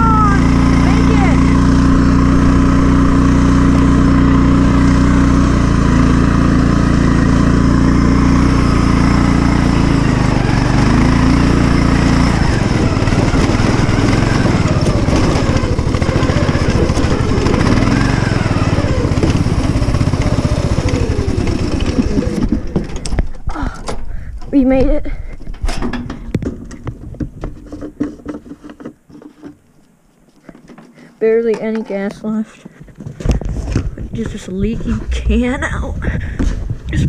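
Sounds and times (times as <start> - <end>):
riding lawn mower engine running: 0.0 - 24.4.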